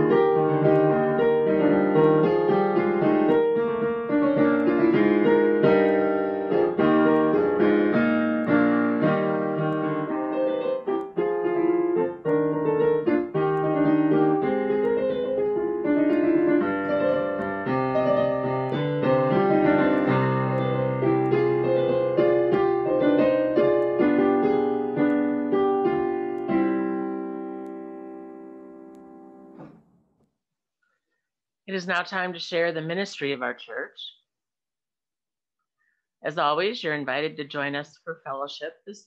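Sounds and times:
solo piano music: 0:00.0 - 0:29.8.

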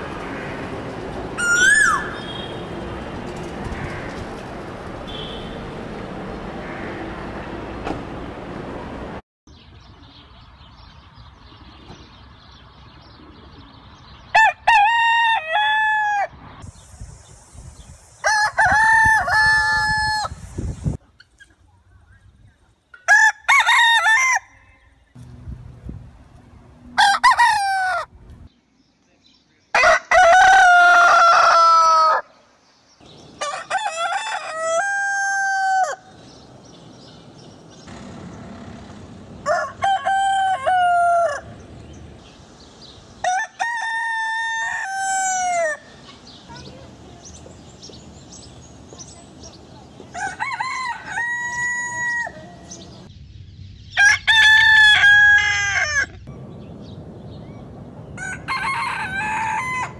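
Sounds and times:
roosters crowing: 0:01.3 - 0:02.3, 0:14.3 - 0:16.4, 0:18.2 - 0:20.4, 0:23.0 - 0:25.0, 0:26.9 - 0:28.2, 0:29.7 - 0:32.4, 0:33.3 - 0:42.2, 0:43.1 - 0:46.0, 0:50.0 - 0:53.1, 0:53.9 - 0:56.3, 0:58.0 - 0:59.9.

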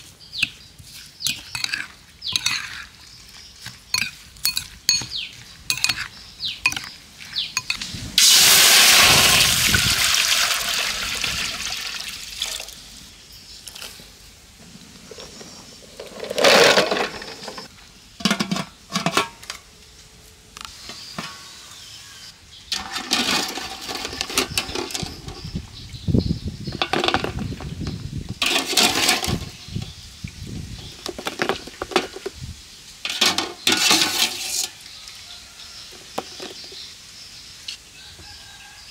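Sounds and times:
metal cookware clinking: 0:01.3 - 0:02.9, 0:03.9 - 0:06.9, 0:07.6 - 0:07.9, 0:28.4 - 0:29.5, 0:33.0 - 0:34.7
water rushing into a pot: 0:08.2 - 0:12.8.

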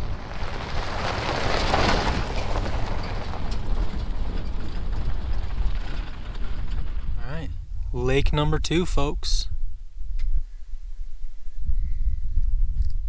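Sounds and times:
car driving past on gravel: 0:00.0 - 0:07.2
wind rumbling on microphone: 0:00.0 - 0:13.0.

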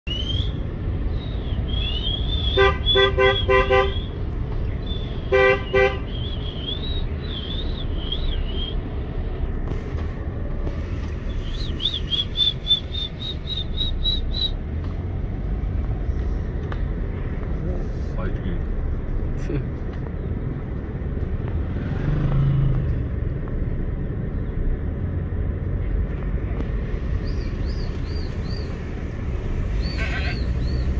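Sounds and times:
car rumbling: 0:00.0 - 0:30.9
car horn toots: 0:02.5 - 0:04.1, 0:05.3 - 0:06.1, 0:29.9 - 0:30.5.

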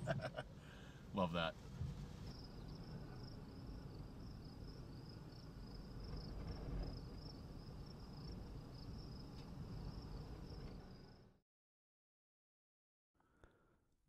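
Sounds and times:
high-pitched insect trill: 0:02.3 - 0:11.2.

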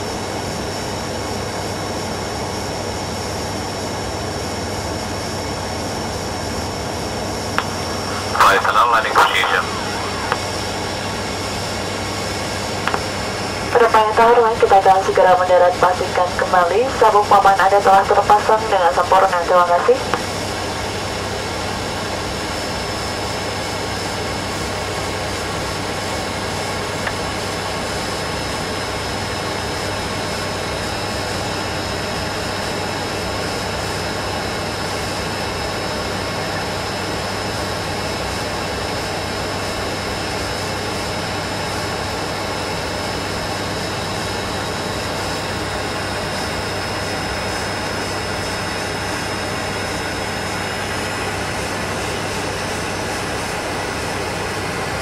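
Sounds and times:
airliner cabin propeller drone: 0:00.0 - 0:55.0
thin high whine: 0:07.6 - 0:15.1.

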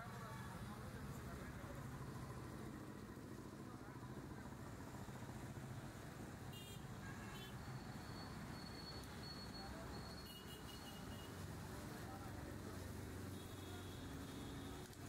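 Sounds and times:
street traffic rumble: 0:00.0 - 0:15.0
short high-pitched beeps: 0:07.7 - 0:11.3.

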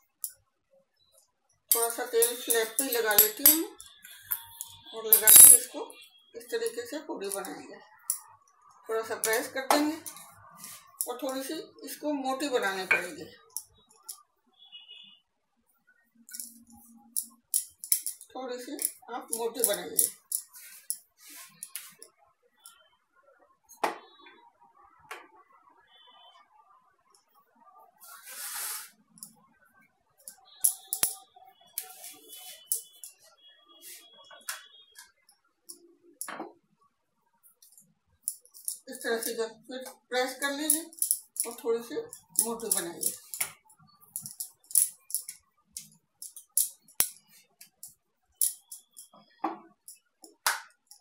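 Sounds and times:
short hiss: 0:28.1 - 0:29.0.

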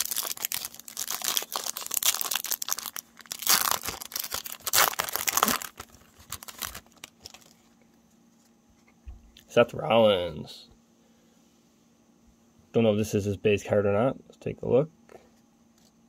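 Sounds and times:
foil wrapper crinkling and tearing: 0:00.0 - 0:07.7.

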